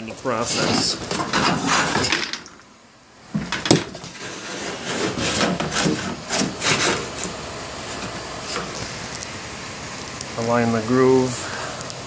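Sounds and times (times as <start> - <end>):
metal sheet scraping over wood: 0.4 - 2.3, 3.6 - 8.8.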